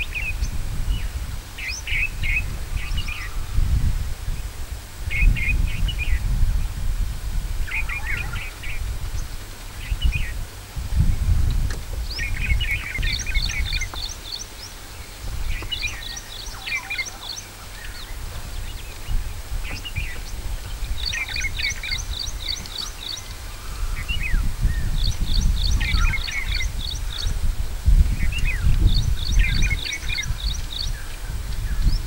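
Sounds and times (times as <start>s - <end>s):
lower bird chirps: 0.0s - 4.5s, 7.6s - 32.0s
birds singing high notes: 7.6s - 10.4s, 12.0s - 27.4s, 28.1s - 32.0s.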